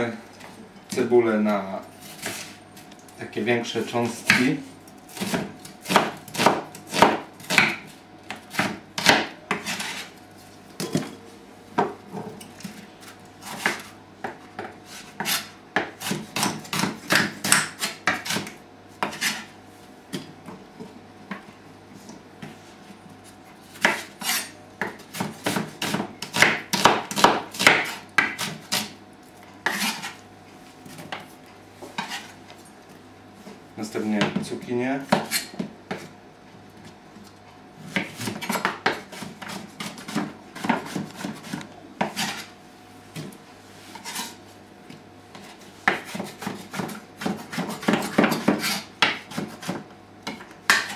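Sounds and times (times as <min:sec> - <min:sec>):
knife chopping on wooden board: 0:05.1 - 0:10.0, 0:13.4 - 0:19.4, 0:23.7 - 0:29.0, 0:29.6 - 0:30.2, 0:34.2 - 0:36.1, 0:37.9 - 0:42.5, 0:45.3 - 0:50.9.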